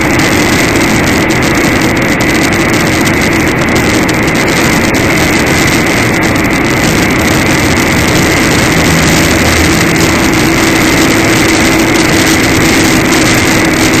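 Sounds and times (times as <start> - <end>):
vehicle engine and road noise: 0.0 - 14.0
high-pitched tone: 5.4 - 13.2.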